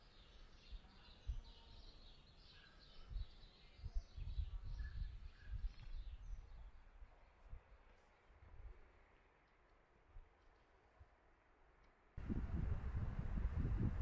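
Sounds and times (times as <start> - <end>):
small birds chirping: 0.0 - 6.9
low rumbling: 12.2 - 14.0.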